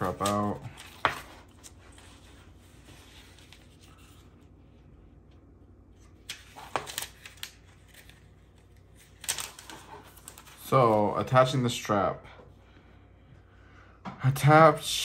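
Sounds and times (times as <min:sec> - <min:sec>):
paper pages rustling and flicking: 0:00.0 - 0:04.5, 0:06.0 - 0:11.4.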